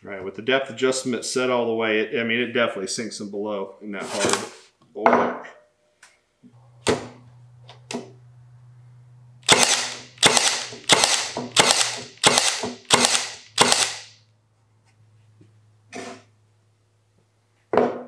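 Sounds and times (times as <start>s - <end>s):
low steady hum: 6.5s - 10.2s
brad nailer firing shots: 9.4s - 14.2s
nailer clicks: 9.4s - 14.2s.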